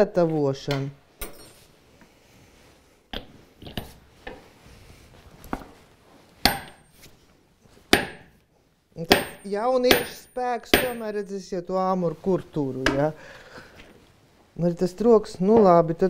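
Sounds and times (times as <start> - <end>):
hammer striking metal pestle: 6.4 - 6.8, 7.9 - 8.3, 9.0 - 11.2.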